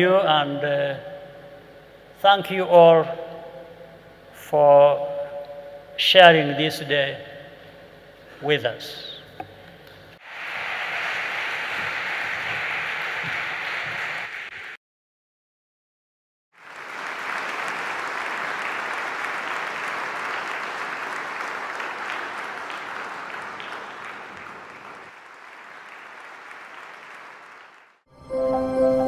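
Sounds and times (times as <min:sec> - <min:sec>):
audience applauding: 0:10.2 - 0:14.8, 0:16.6 - 0:28.1
music: 0:28.1 - 0:29.0.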